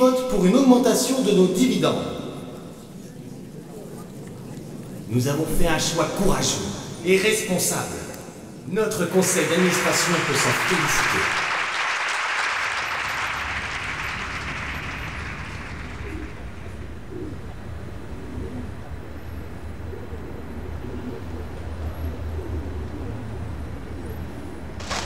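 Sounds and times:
low city rumble: 0.3 - 25.0
applause: 9.2 - 16.7
pigeon cooing: 16.0 - 24.8.

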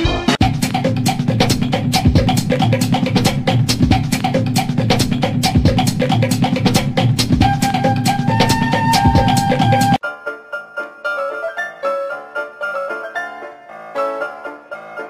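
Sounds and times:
music with fast drum beat: 0.0 - 10.0
held high tone: 7.4 - 13.7.

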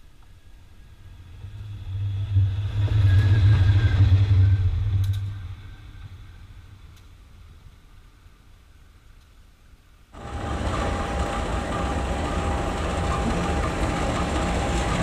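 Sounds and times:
sharp clicks of train: 5.0 - 5.4, 10.2 - 15.0
locomotive passing: 10.2 - 15.0.

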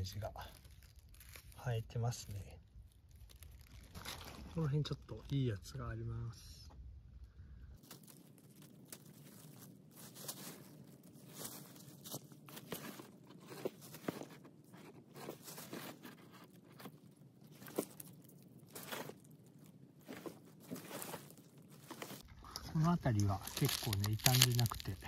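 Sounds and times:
hands digging in dry leaves: 7.8 - 14.2, 17.5 - 22.2, 23.2 - 25.0.

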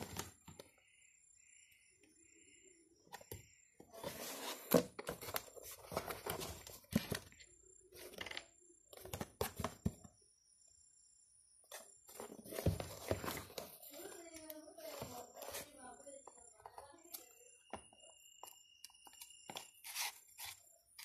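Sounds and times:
cardboard scraping and rubbing: 4.0 - 7.1.

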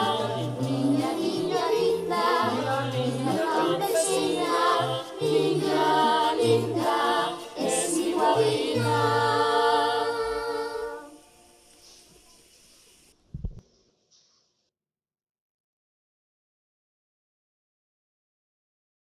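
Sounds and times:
children's choir singing: 0.0 - 11.5.

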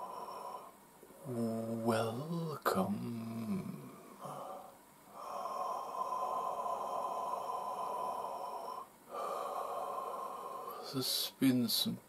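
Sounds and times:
man breathing deeply: 0.0 - 0.8, 3.8 - 11.0.

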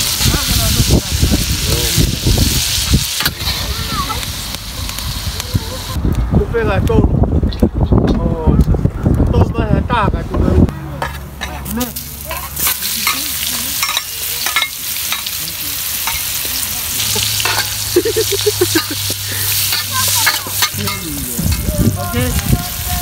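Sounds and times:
onion sizzling in hot oil: 0.0 - 6.0, 11.5 - 23.0
metal spatula scraping wok: 11.0 - 22.8.

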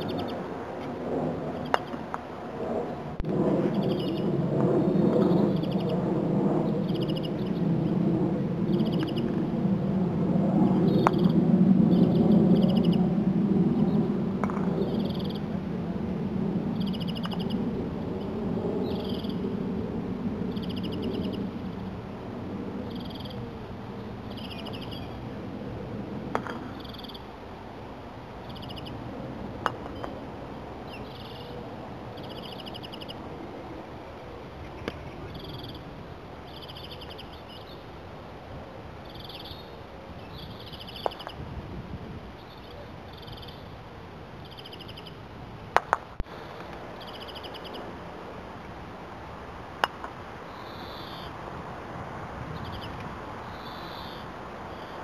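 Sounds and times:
low rumble: 0.0 - 16.9
croquet mallet striking balls: 14.4 - 14.8, 26.4 - 26.7, 45.8 - 46.1, 49.8 - 50.2.

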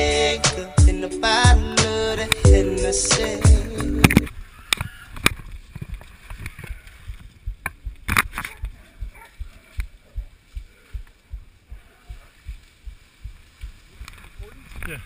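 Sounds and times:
rustling of brush and gear: 1.3 - 15.0
footsteps through undergrowth: 3.2 - 15.0.

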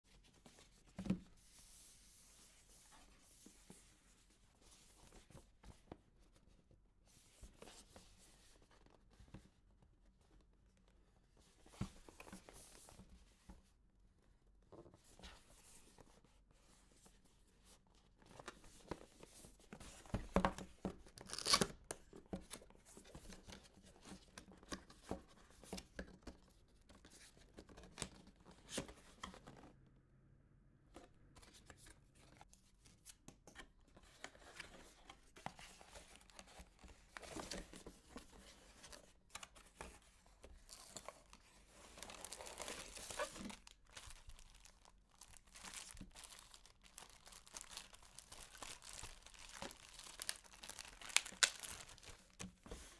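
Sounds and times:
cardboard packaging rustling: 35.4 - 52.9
plastic wrap crinkling: 42.0 - 52.4.

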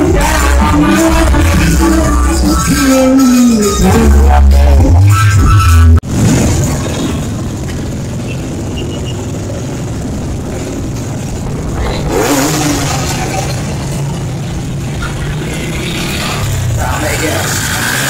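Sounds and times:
motorcycles riding past: 6.2 - 18.0.

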